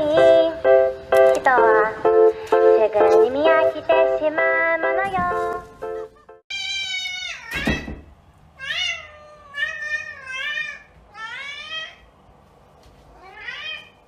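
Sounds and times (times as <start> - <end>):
cat meowing: 6.5 - 7.9, 8.6 - 12.0, 13.1 - 14.0.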